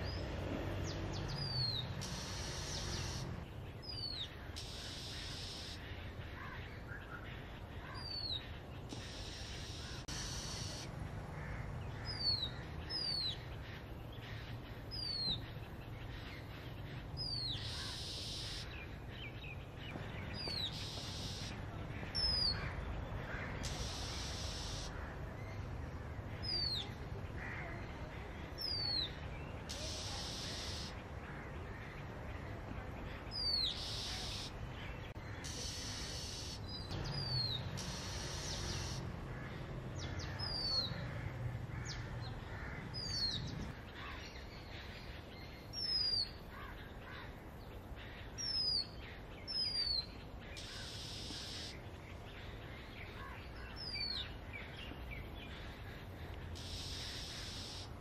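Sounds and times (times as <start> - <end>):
bird rasping notes: 0.0 - 3.5, 35.4 - 39.6
bird whistling song: 1.4 - 3.3.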